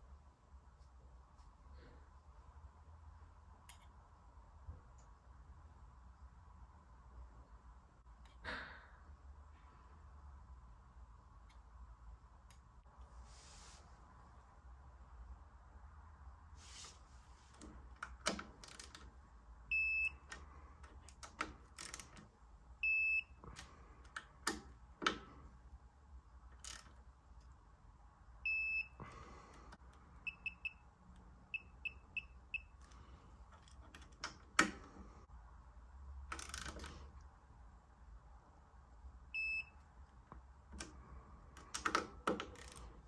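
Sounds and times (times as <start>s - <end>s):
ratchet head clicking on bolts: 36.3s - 37.0s, 41.7s - 43.0s.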